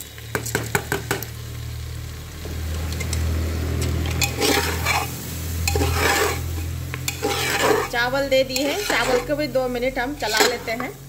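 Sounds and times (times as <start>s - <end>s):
gentle sizzle: 0.0s - 11.0s
metal spatula scraping rice in pot: 3.8s - 11.0s.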